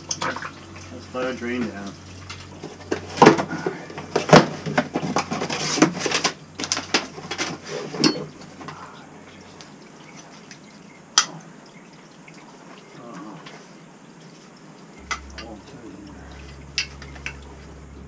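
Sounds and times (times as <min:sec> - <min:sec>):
hand tools clanking on metal: 0:02.3 - 0:08.9.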